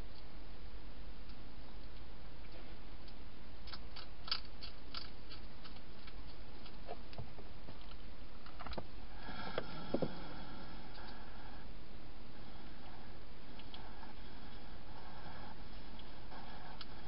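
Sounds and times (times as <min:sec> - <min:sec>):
hedgehog crunching dry food: 0:03.6 - 0:07.0.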